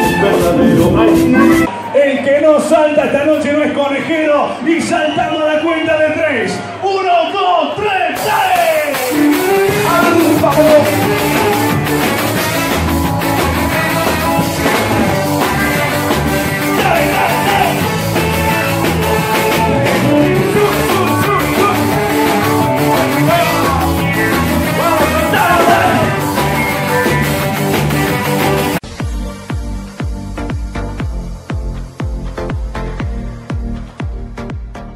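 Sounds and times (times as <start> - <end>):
person singing: 0.0 - 1.7, 8.9 - 12.0, 16.6 - 27.1
repeating bass beat: 0.0 - 1.7, 8.2 - 34.9
live band music: 0.0 - 1.9, 8.1 - 31.0.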